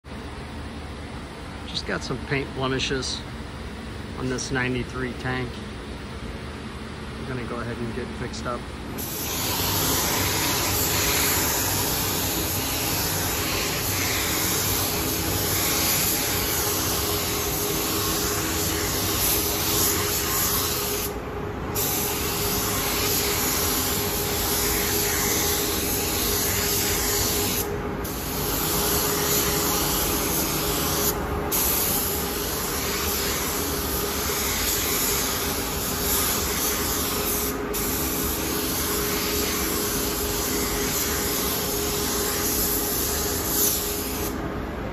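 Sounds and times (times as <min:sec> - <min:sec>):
steady hum: 0:00.1 - 0:44.9
paint spray gun hissing: 0:09.0 - 0:21.2, 0:21.8 - 0:44.4.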